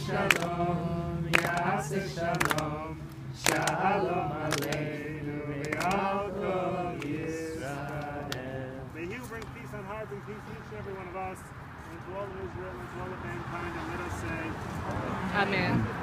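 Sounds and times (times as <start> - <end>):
sharp claps: 0.0 - 0.6, 1.3 - 5.0, 5.6 - 6.2
voices singing together: 0.0 - 9.4.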